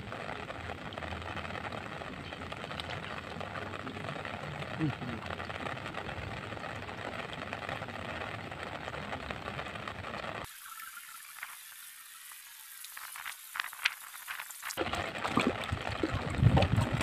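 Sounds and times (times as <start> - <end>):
heavy rain on a pond: 0.0 - 17.0
low rumble: 14.8 - 17.0.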